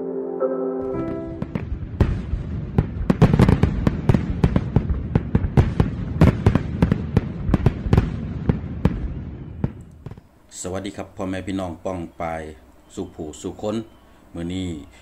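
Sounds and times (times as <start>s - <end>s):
fireworks bangs and crackles: 1.0s - 10.3s.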